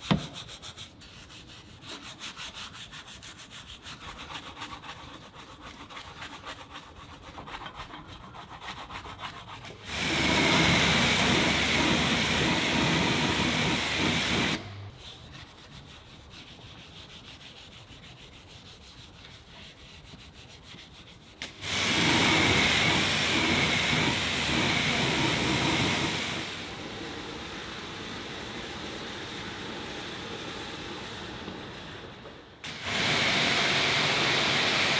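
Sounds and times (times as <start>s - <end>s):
brush scrubbing metal: 0.0s - 26.2s.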